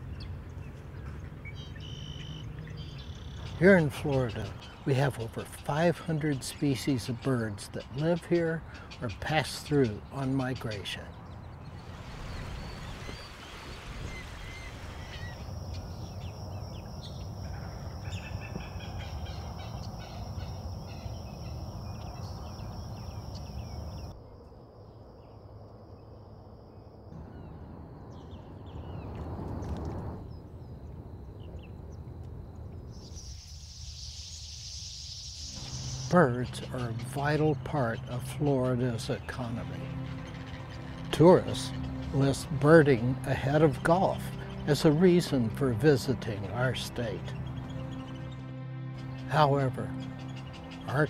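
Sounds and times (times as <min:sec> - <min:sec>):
birds chirping: 0:00.0 - 0:24.2, 0:27.2 - 0:51.0
outdoor background noise: 0:00.0 - 0:51.0
high hiss: 0:33.0 - 0:36.2.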